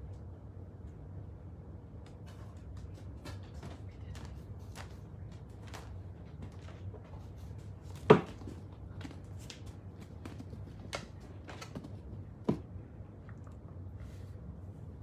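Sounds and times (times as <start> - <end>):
rabbit landing thud on wood: 8.0 - 8.6.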